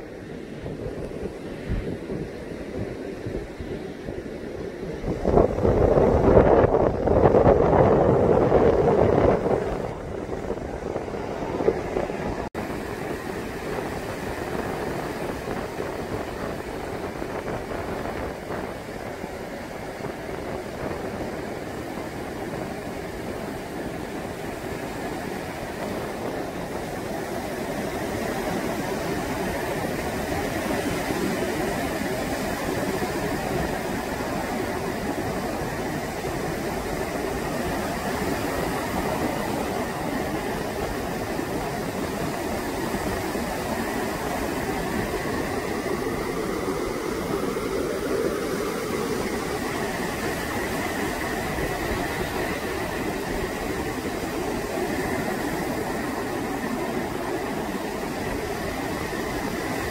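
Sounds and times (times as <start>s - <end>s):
waves washing on beach: 0.0s - 59.9s.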